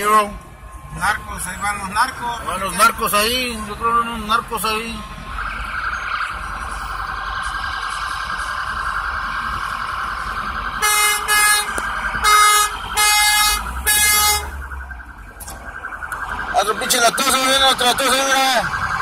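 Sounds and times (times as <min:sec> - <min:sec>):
emergency siren warbling: 0:00.0 - 0:19.0
vehicle horn blasts: 0:10.8 - 0:14.6.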